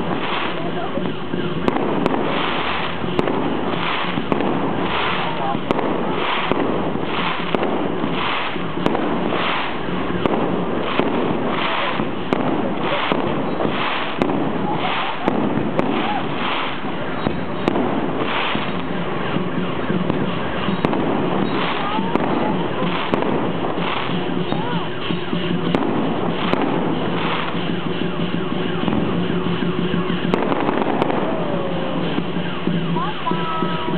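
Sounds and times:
continuous fireworks din: 0.0 - 33.9
fireworks bangs: 0.0 - 33.9.

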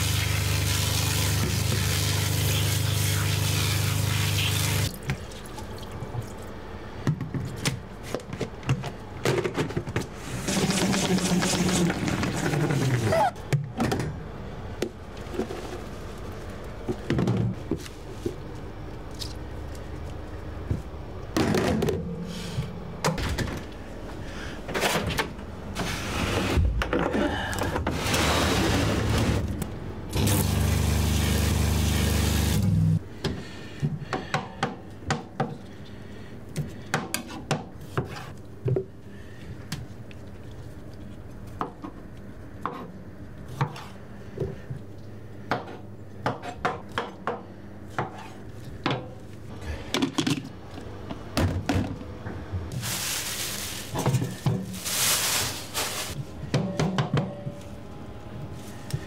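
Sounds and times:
loud steady noise with hum: 0.0 - 36.9.

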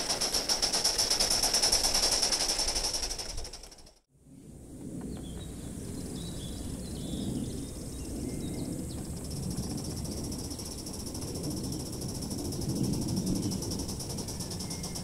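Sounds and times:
steam locomotive exhaust beats: 0.0 - 4.0, 8.5 - 15.0
bird chirps: 5.1 - 15.0.

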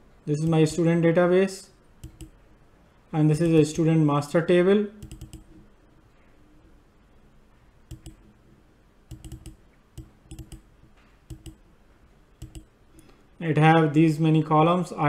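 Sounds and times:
faint steady hiss: 0.0 - 15.0
computer mouse clicking: 2.0 - 2.4, 5.0 - 5.6, 7.9 - 8.3, 9.1 - 11.6, 12.4 - 13.1.

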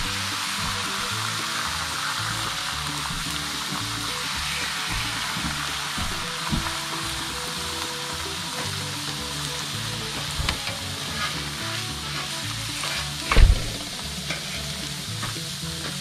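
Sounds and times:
eggs sizzling in a hot pan: 0.0 - 16.0.

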